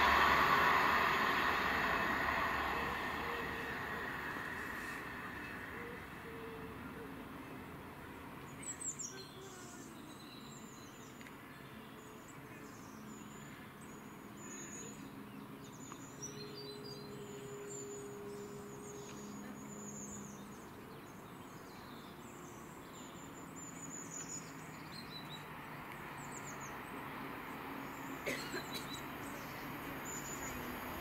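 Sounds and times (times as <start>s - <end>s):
small birds chirping: 8.4s - 27.0s.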